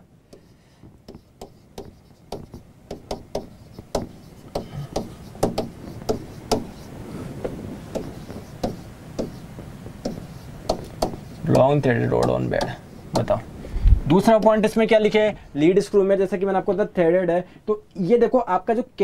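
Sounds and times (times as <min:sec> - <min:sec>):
pen tapping on whiteboard: 0:00.3 - 0:13.4.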